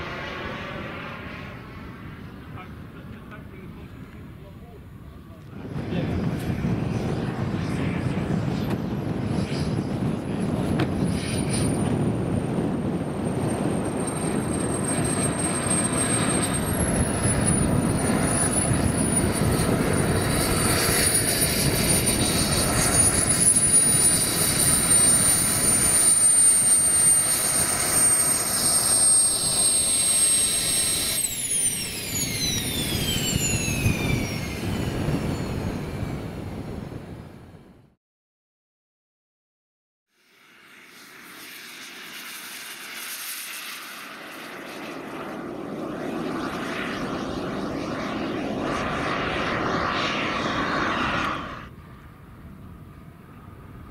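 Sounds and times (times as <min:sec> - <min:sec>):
jet rush: 0:00.0 - 0:37.3, 0:40.3 - 0:52.0
jet turbine whine: 0:00.0 - 0:38.0, 0:40.1 - 0:53.9.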